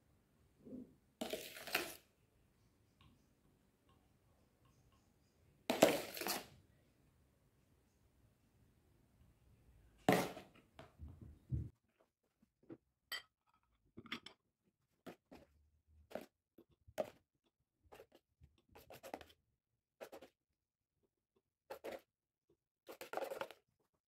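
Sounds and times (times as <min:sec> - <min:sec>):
spoon scraping ice cream: 0:21.7 - 0:22.1, 0:22.9 - 0:23.6.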